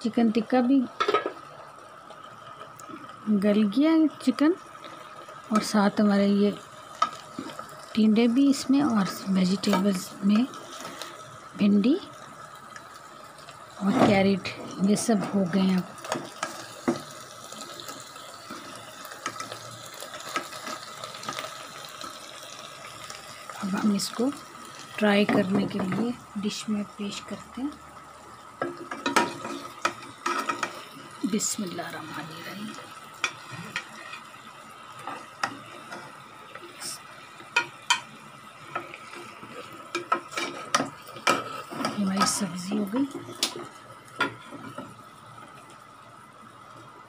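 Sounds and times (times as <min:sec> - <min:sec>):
low hiss from hot dish: 0:02.6 - 0:46.4
spoon stirring in a pot: 0:38.7 - 0:44.8.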